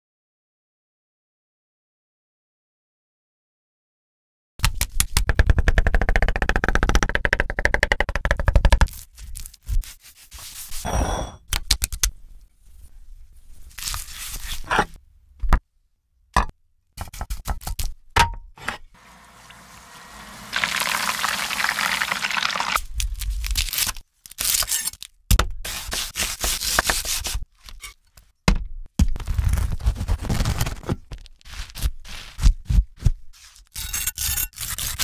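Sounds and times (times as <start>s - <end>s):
frying oil sizzling: 19.0s - 22.8s
serrated knife sawing crusty bread: 33.7s - 35.0s.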